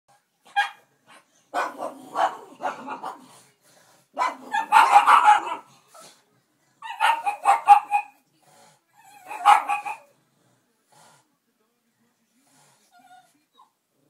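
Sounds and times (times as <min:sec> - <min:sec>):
dogs barking: 0:00.5 - 0:03.3, 0:04.2 - 0:05.7, 0:06.8 - 0:08.2, 0:09.2 - 0:10.1.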